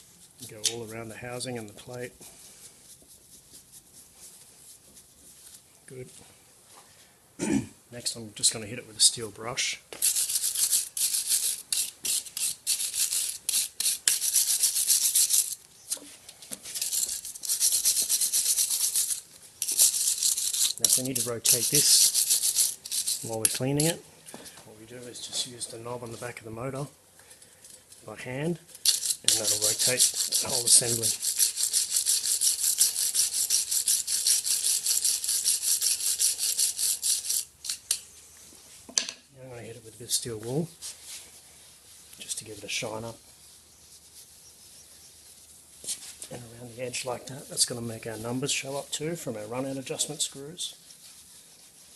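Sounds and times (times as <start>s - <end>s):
wire brush scratching metal: 10.0s - 24.0s, 27.9s - 38.1s, 40.0s - 51.9s.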